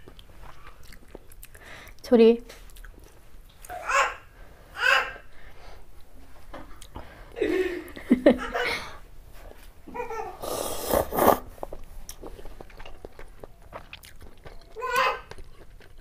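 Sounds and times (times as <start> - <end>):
soft chewing clicks: 0.0 - 3.8, 11.6 - 16.0
slurping noodles: 10.4 - 12.4.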